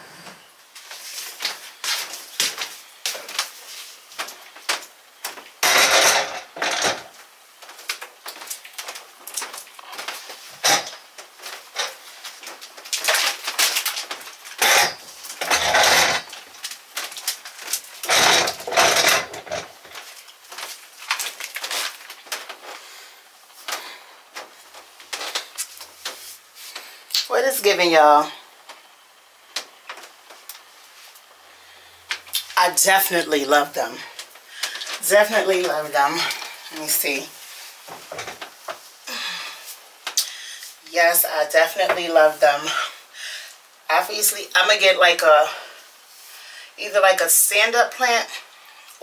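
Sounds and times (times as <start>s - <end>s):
chairs scraping on wooden floor: 14.6s - 16.3s, 18.0s - 20.0s.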